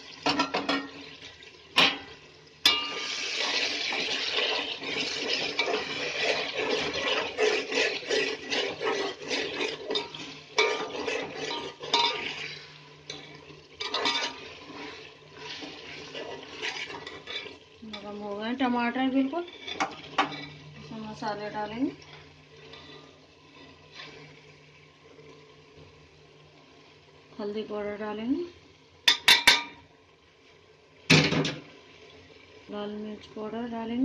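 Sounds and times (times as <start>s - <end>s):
oil sizzling: 0.0s - 34.0s
metal ladle scraping pot: 1.8s - 18.2s, 19.1s - 24.5s.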